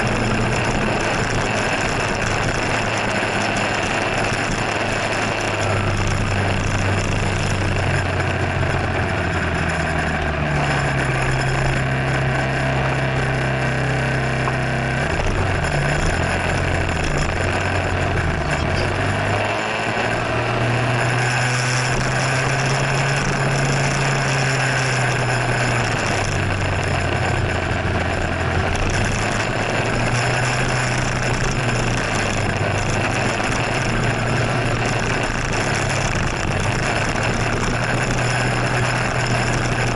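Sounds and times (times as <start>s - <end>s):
motor scooter engine: 0.0s - 39.9s.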